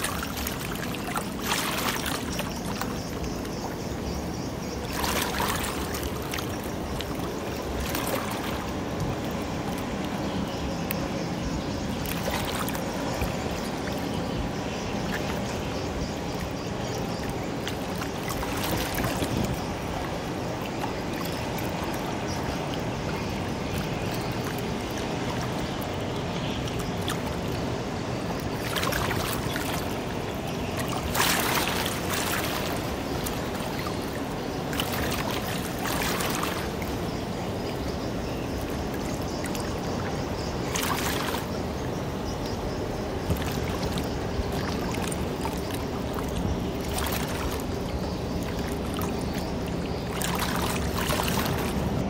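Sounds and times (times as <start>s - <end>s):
water splashing along ship hull: 0.0s - 52.0s.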